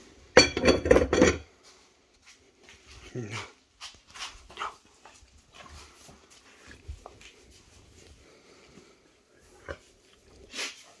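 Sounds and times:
dog sniffing and snuffling: 3.0 - 11.0.

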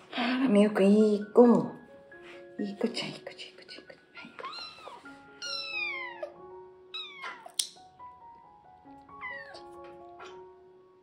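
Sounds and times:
background music: 0.0 - 11.0
kitten meowing: 4.4 - 7.6, 9.1 - 9.7
sharp click: 7.5 - 7.8.

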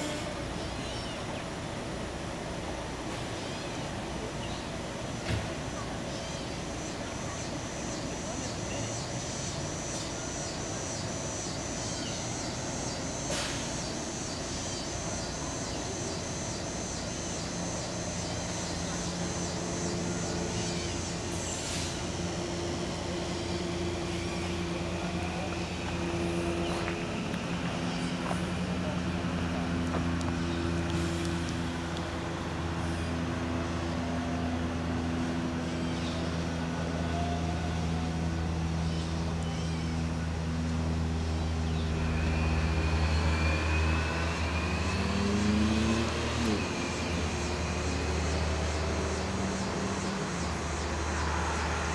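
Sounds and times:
train low rumble and hum: 0.0 - 45.1
low drone: 0.0 - 51.9
short hiss: 13.3 - 13.8.

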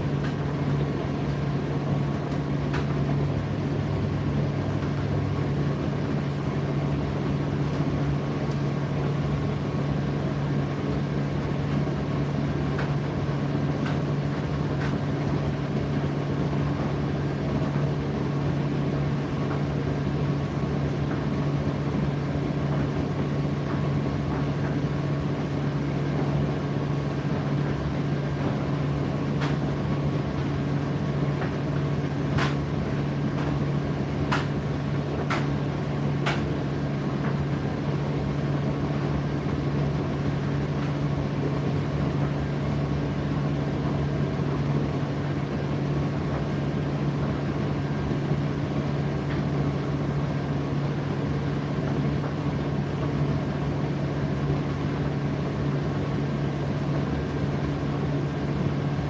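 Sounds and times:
tumble dryer humming: 0.0 - 59.0.

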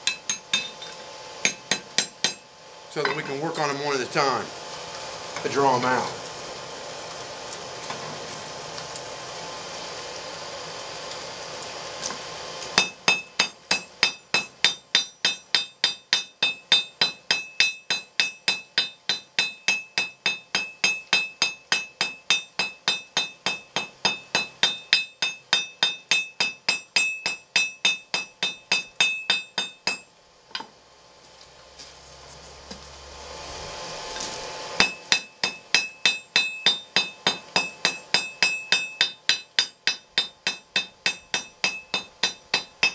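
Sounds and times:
hammer striking steel on anvil: 0.0 - 3.8, 12.8 - 30.7, 34.8 - 42.9.

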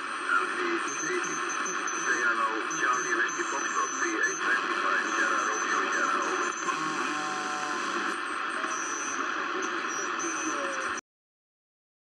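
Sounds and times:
faint warbling radio tones: 0.0 - 11.0
shortwave radio static: 0.0 - 11.0.

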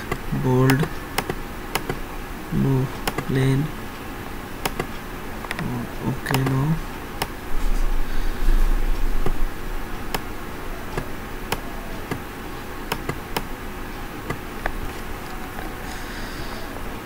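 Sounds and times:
computer mouse clicking: 0.0 - 2.0, 3.0 - 3.4, 4.6 - 5.7, 6.3 - 6.6, 12.9 - 13.5, 14.3 - 15.8
background hiss and hum: 0.0 - 17.0
low rumble: 7.4 - 10.9.

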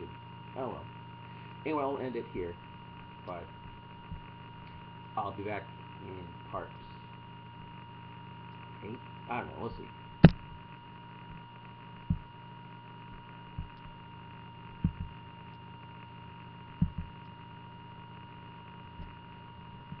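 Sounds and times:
electrical hum with high tone: 0.0 - 20.0
soft low thumps: 3.1 - 4.8, 10.1 - 10.6, 12.0 - 12.4, 13.0 - 14.0, 14.7 - 15.2, 16.7 - 17.3.

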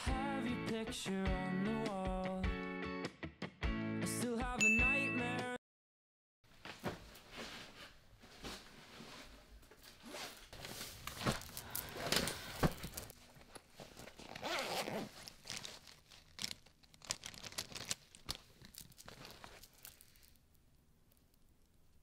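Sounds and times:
bedding rustling: 6.5 - 20.2
pencil case zipper opening: 14.1 - 15.7.

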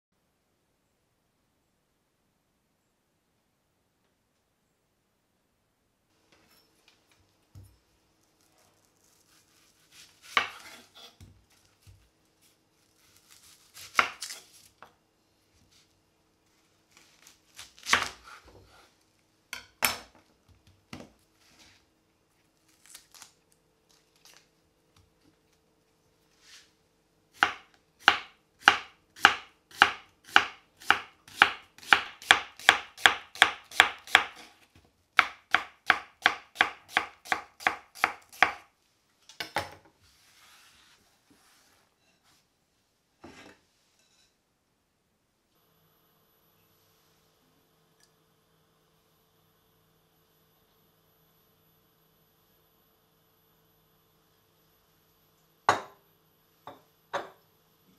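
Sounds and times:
knife slicing onion on wooden board: 8.5 - 12.1, 13.0 - 14.9, 16.9 - 18.9, 27.3 - 34.6, 35.2 - 38.7.

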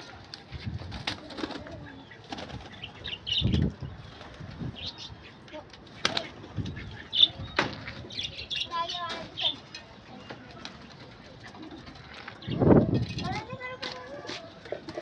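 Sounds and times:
pigeons flapping wings: 0.0 - 2.9, 6.0 - 6.5.

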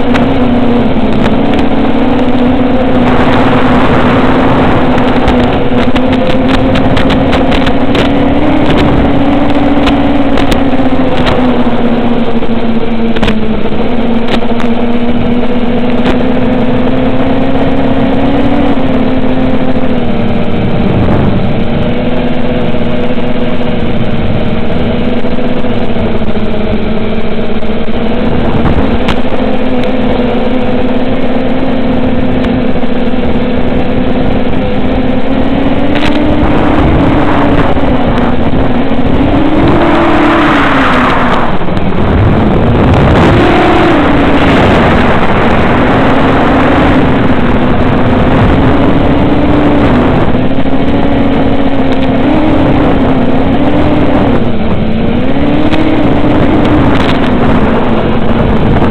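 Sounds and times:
quadcopter propellers droning: 0.0 - 58.9
sharp clicks and crackles: 4.9 - 11.6, 13.1 - 13.4, 14.2 - 14.8, 35.9 - 38.6, 55.6 - 58.9.

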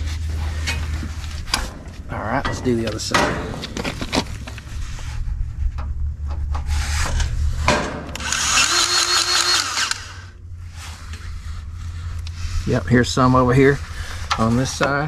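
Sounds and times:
metal coupler clicks and knocks: 1.5 - 4.2
grease gun motor running: 8.2 - 10.3.

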